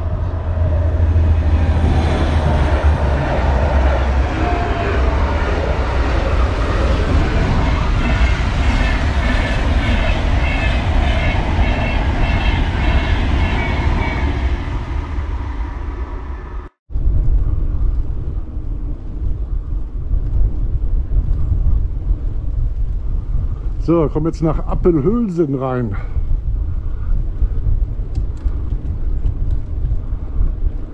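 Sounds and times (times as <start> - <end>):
train rattle: 0.0 - 16.6
train passing rumble: 0.0 - 30.9.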